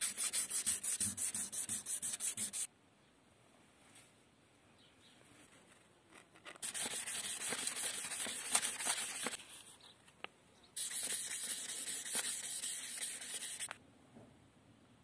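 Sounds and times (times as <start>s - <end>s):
sandpaper rubbing on metal: 0.0s - 2.7s, 6.6s - 9.4s, 10.8s - 13.7s.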